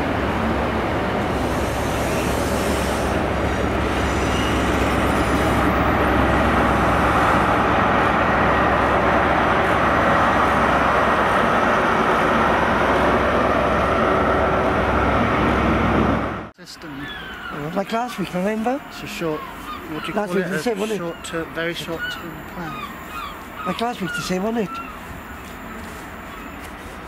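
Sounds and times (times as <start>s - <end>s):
train wheels rumbling on rails: 0.0s - 16.5s
diesel locomotive engine: 0.0s - 27.0s.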